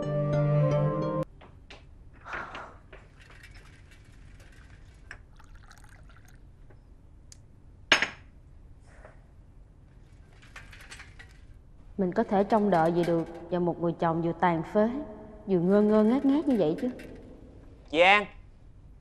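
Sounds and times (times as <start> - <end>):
tea pouring into cup: 3.2 - 6.5.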